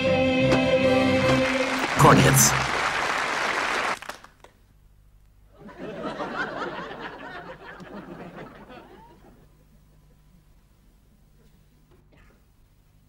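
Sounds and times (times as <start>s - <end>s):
audience laughing: 5.6s - 10.2s.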